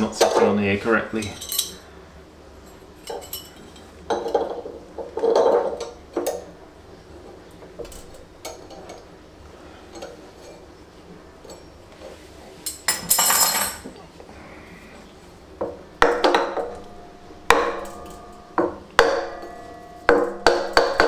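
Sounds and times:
metal parts clinking: 1.2 - 1.8, 2.7 - 4.4.

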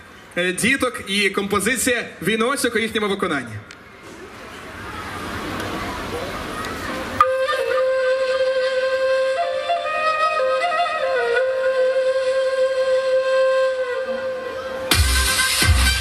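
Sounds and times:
outdoor background noise: 0.0 - 16.0
solo woodwind melody: 7.2 - 16.0
dance music: 14.9 - 16.0.

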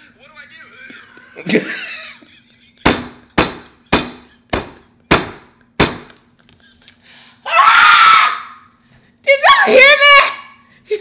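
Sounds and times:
hand slapping a tabletop: 2.8 - 6.3.

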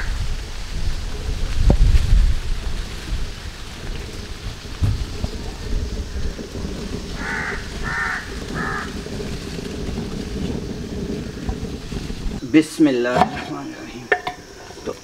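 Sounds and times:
bird calling: 4.8 - 9.4.

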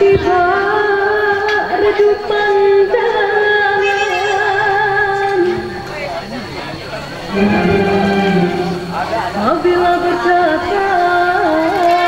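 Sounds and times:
woman singing long note: 7.3 - 11.4.

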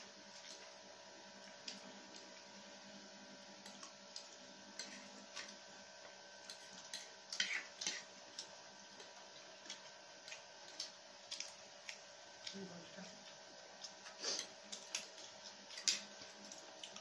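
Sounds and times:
eating sounds: 6.4 - 17.0.

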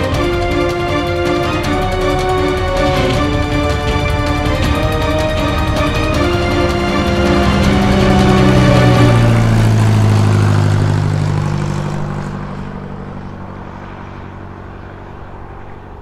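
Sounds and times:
propeller plane engine passing: 0.0 - 16.0.

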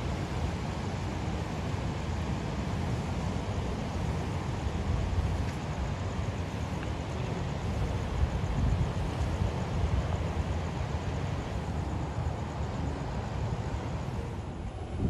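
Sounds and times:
wind buffeting microphone: 4.2 - 15.0.

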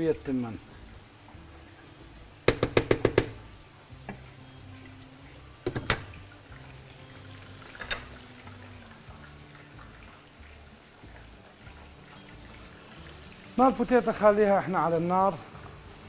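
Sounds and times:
faint background music: 0.0 - 16.0
utensil tapping pan rim: 2.4 - 3.4.

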